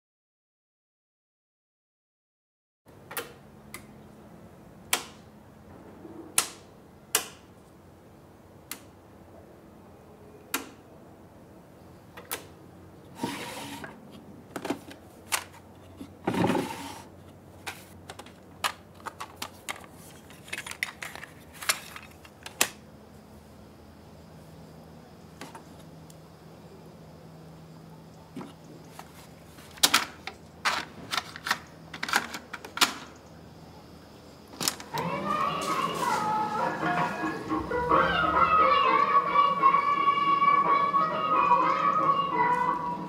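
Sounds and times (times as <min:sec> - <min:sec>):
faint low hum: 0:17.1 - 0:43.0.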